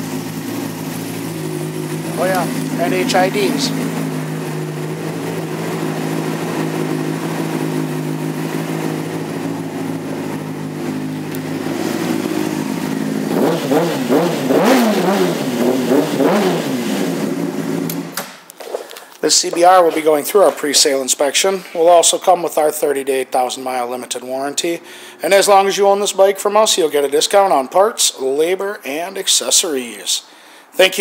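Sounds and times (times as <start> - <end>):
motorcycle engine idling and revving: 0.0 - 18.2.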